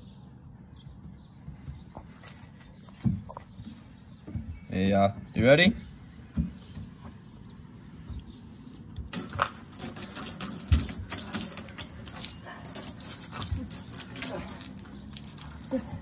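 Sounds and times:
milk splashing on wooden decking: 9.1s - 16.0s.

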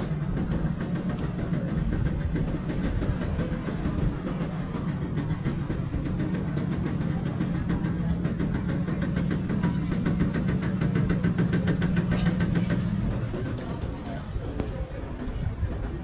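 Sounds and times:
vehicle engine running: 0.0s - 16.0s.

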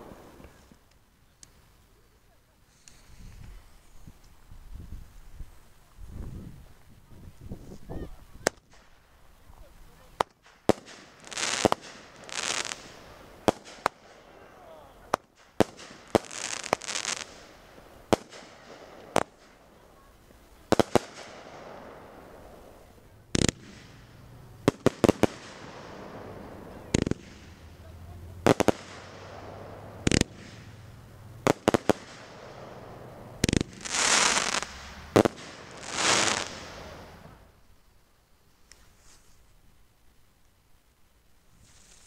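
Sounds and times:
firework crackling: 0.0s - 5.8s, 6.7s - 37.8s
firework bangs: 10.0s - 37.5s.

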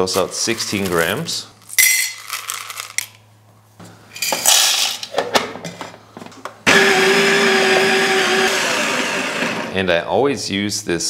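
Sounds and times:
coffee grinder running: 6.7s - 9.8s.

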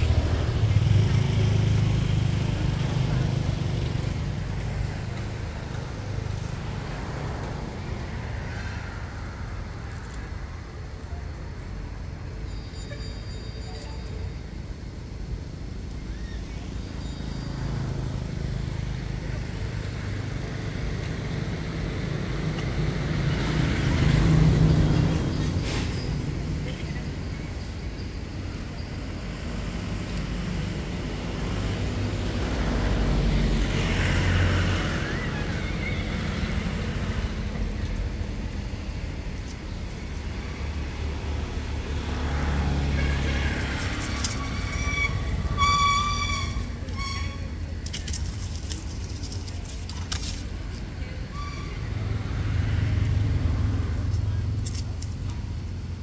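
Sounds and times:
vehicle engine passing: 29.3s - 47.8s, 51.7s - 56.0s
monkeys squealing: 34.7s - 36.6s, 44.0s - 47.5s.

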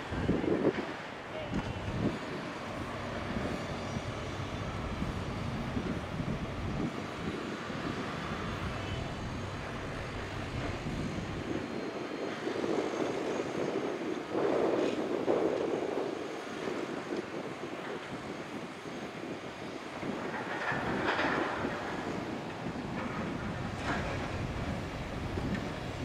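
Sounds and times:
excavator diesel engine running: 1.8s - 11.8s, 22.8s - 26.0s.

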